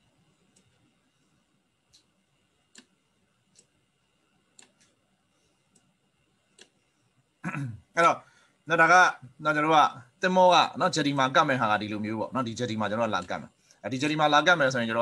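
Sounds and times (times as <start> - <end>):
computer mouse clicks: 0.4 - 0.8, 1.9 - 3.8, 4.5 - 5.0, 6.5 - 6.8.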